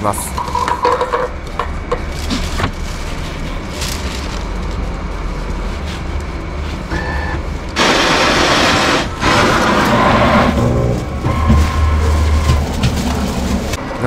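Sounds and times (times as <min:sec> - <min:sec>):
coffee machine beep: 0:06.9 - 0:07.4
coffee machine grinding: 0:06.9 - 0:13.8.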